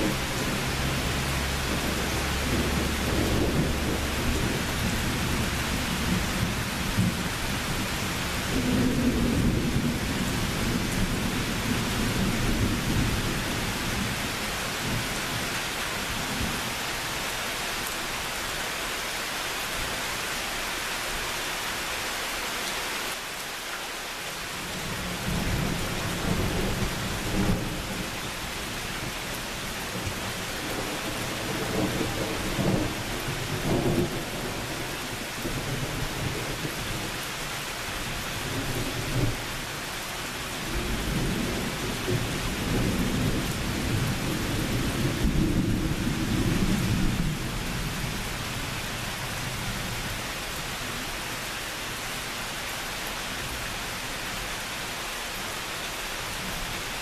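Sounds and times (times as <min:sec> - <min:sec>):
rolling thunder: 0:00.0 - 0:07.8
rain hiss: 0:00.0 - 0:57.0.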